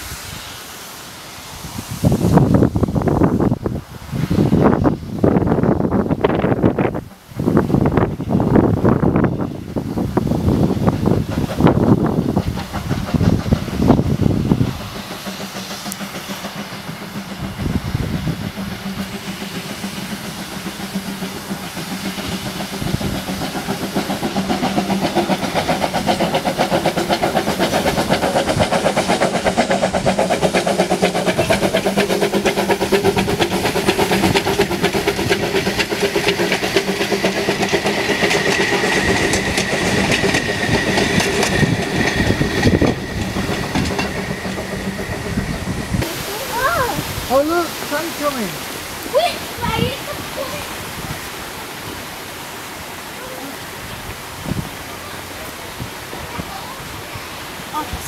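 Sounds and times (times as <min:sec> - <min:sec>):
steam train clattering past: 0:00.0 - 0:58.0
high squeal: 0:37.1 - 0:47.0.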